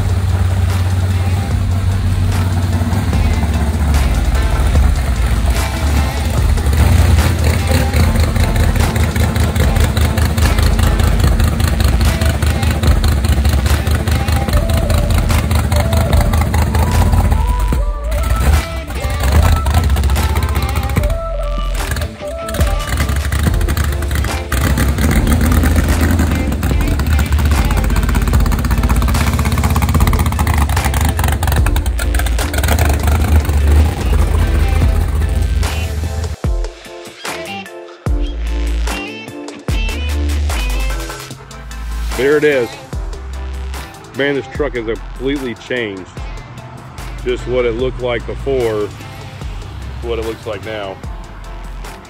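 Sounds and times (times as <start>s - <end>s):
race car engine idling: 0.0s - 36.4s.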